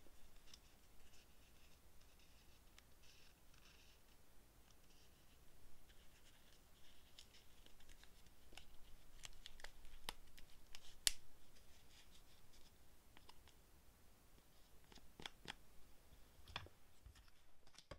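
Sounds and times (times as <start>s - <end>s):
paper rustling: 4.8s - 13.5s.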